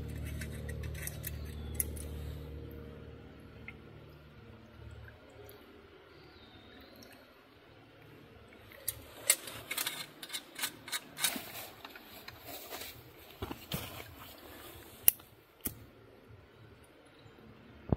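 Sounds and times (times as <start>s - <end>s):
metal parts clicking: 0.0s - 2.2s, 8.8s - 12.0s.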